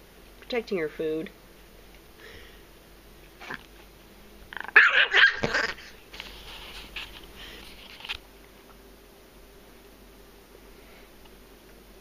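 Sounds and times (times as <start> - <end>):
small dog snarling and barking: 3.4 - 3.7, 4.5 - 6.0.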